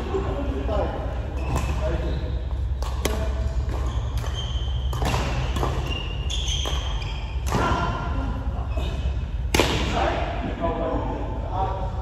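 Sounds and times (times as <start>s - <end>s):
steady low hum: 0.0s - 12.0s
short high squeaks: 5.8s - 7.5s.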